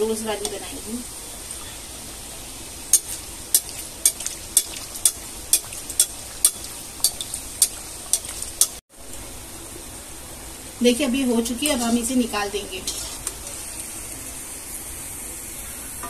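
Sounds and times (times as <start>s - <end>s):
oil sizzling: 0.0s - 16.0s
slotted spoon ticking in oil: 2.9s - 8.8s.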